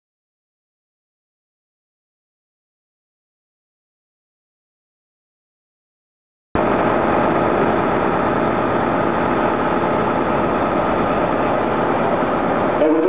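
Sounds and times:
electric train humming: 6.6 - 13.0.

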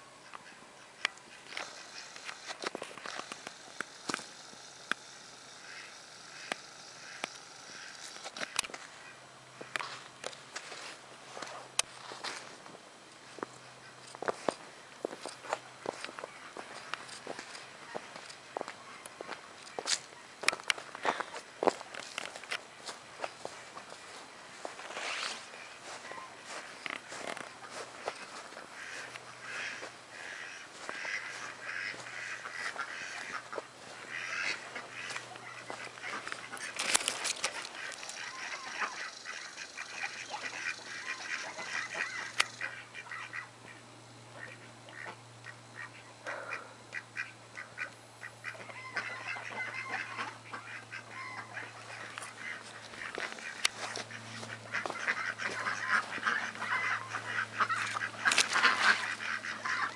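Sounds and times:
poultry calling: 0.2 - 10.0, 13.3 - 59.9.

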